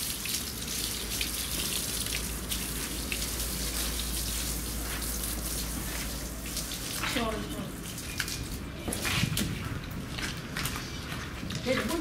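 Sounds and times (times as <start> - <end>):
hose water spraying and splashing: 0.0 - 9.5.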